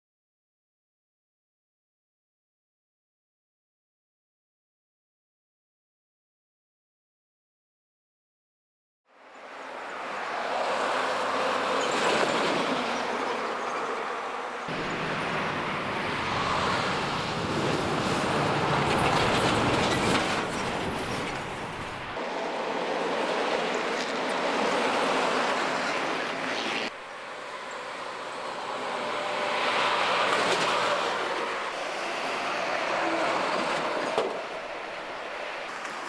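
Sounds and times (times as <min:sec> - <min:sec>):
heavy trucks driving past: 0:09.4 - 0:35.7.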